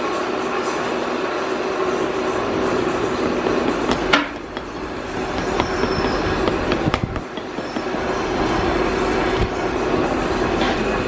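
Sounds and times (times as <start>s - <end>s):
workshop machinery drone: 0.0s - 11.0s
trowel tapping sand: 3.2s - 8.4s.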